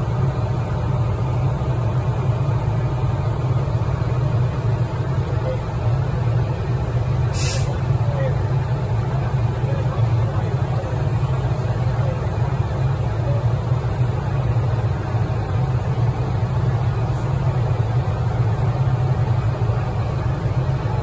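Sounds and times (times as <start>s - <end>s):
fire truck engine droning: 0.0s - 21.0s.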